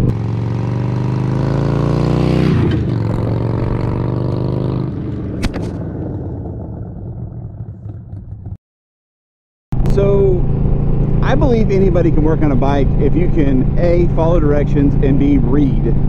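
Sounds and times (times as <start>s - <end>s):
motorcycle engine accelerating: 0.0s - 8.6s, 9.7s - 16.0s
sharp click: 5.4s - 5.8s.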